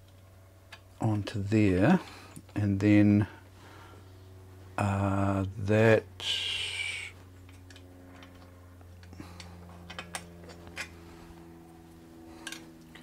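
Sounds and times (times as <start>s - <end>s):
small metal parts clicking: 7.5s - 11.0s, 12.4s - 13.0s.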